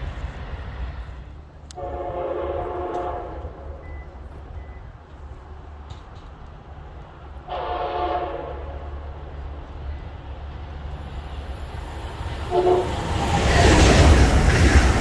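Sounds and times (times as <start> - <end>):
train rushing past: 0.0 - 15.0
train horn blast: 1.7 - 3.9, 7.5 - 9.0, 12.4 - 13.2.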